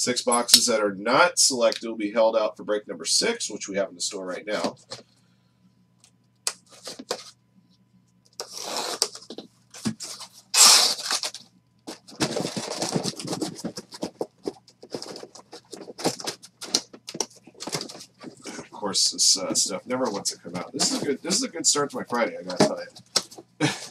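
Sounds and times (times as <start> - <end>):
cardboard rustling: 6.5 - 7.4, 8.4 - 23.9
cardboard and tape tearing: 8.4 - 18.6, 19.5 - 23.4.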